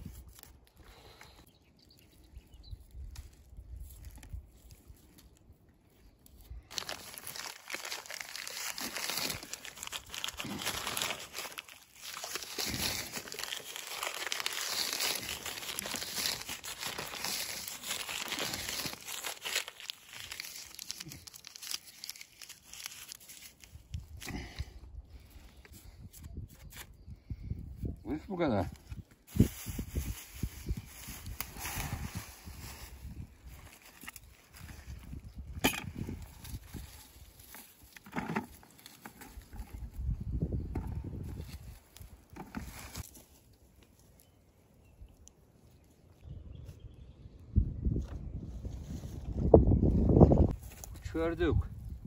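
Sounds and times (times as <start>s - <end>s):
crinkling and crumpling: 0.0s - 1.4s, 2.8s - 24.6s, 28.7s - 44.4s.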